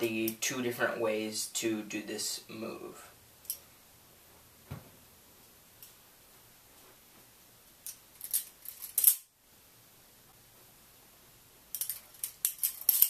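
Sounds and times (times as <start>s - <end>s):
butterfly knife clattering and clicking: 11.8s - 13.0s.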